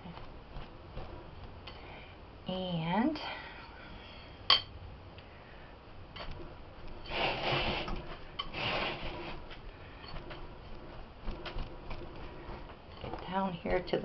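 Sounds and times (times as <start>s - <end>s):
hand rubbing powder in bowl: 6.9s - 13.9s.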